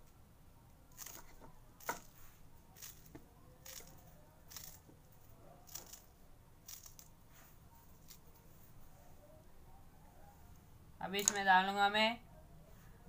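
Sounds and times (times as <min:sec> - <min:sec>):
knife cutting herbs: 0:00.9 - 0:02.2, 0:02.8 - 0:04.9, 0:05.6 - 0:07.1.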